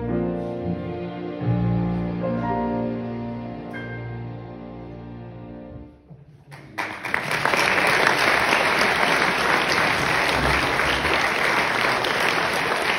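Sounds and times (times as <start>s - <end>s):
audience applause: 6.5s - 12.9s.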